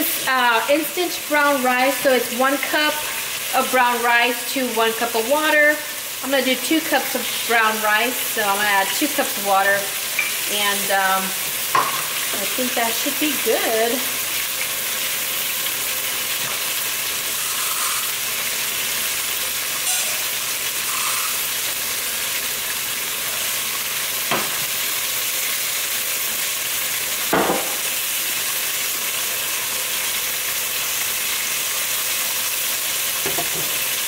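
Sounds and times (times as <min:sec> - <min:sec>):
food sizzling in oil: 0:00.0 - 0:34.0
kitchenware knocks: 0:11.8 - 0:12.1, 0:24.3 - 0:24.6, 0:27.3 - 0:27.8, 0:33.2 - 0:33.8.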